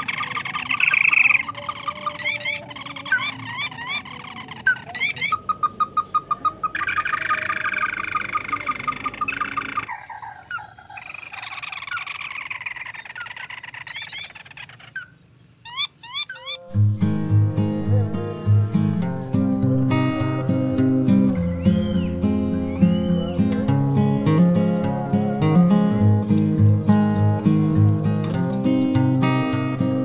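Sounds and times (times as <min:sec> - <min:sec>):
quick rising chirps: 0:00.0 - 0:23.6
frogs croaking: 0:00.0 - 0:30.0.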